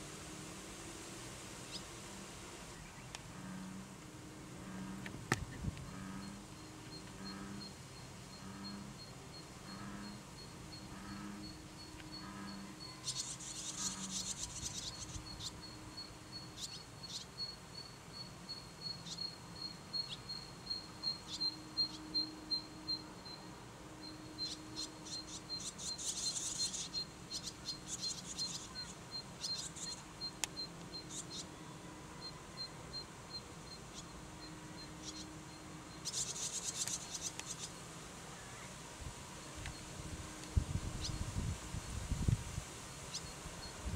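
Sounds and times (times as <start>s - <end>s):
buzzy high-pitched chirping: 6.0s - 23.4s.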